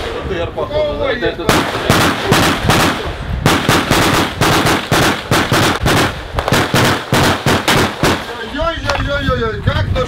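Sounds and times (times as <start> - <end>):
rapid gunfire: 1.5 - 8.4.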